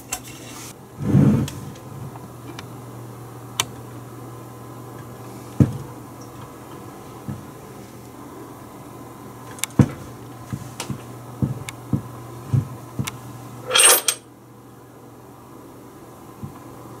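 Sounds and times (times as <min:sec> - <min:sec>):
scraping rustle: 0:00.0 - 0:01.7
low steady hum: 0:00.0 - 0:17.0.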